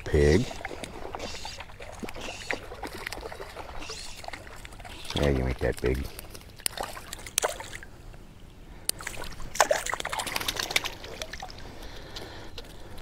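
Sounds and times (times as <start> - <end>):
fish splashing in water: 0.5 - 5.3, 6.2 - 7.9, 9.0 - 12.1.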